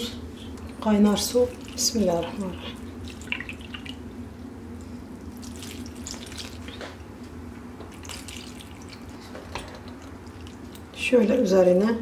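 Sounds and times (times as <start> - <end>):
steady low hum: 0.0 - 12.0
water pouring and splashing: 3.0 - 4.0, 5.4 - 6.8, 7.9 - 10.8.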